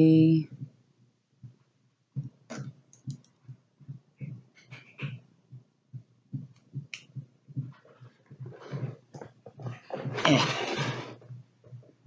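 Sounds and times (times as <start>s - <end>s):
soft rhythmic pulsing: 0.0s - 10.3s, 11.0s - 12.0s.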